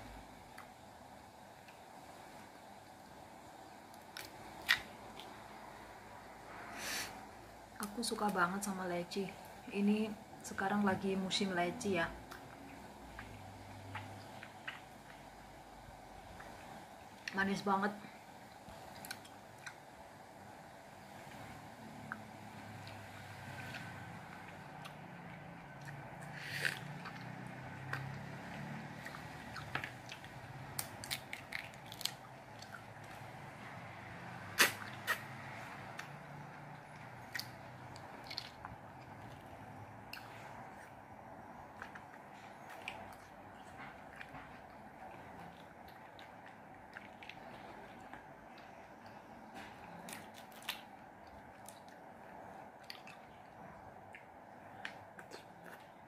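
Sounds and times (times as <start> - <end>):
fruit shells crackling and snapping: 3.9 - 5.5, 22.0 - 33.4, 34.6 - 40.9, 44.1 - 52.0
wet chewing and squishing: 3.9 - 5.9, 12.2 - 17.4, 18.4 - 20.1, 21.2 - 56.0
mouth biting and eating: 12.2 - 15.5, 21.2 - 56.0.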